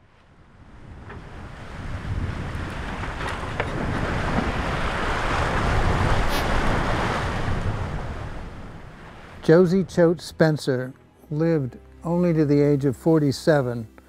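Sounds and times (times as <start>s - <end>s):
wind buffeting microphone: 0.0s - 9.4s
sea water rushing along hull: 0.4s - 13.9s.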